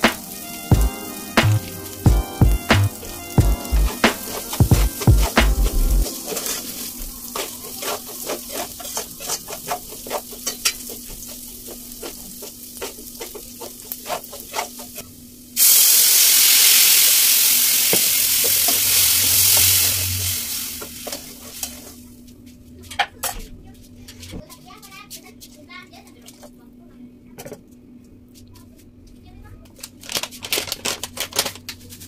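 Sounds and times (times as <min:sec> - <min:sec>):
loud sizzle: 0:00.0 - 0:22.2
rice frying in pot: 0:00.0 - 0:22.2.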